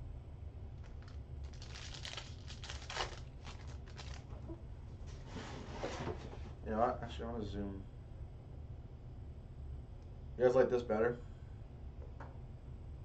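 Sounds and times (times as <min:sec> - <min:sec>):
foil wrapper crinkling and tearing: 0:00.8 - 0:04.6.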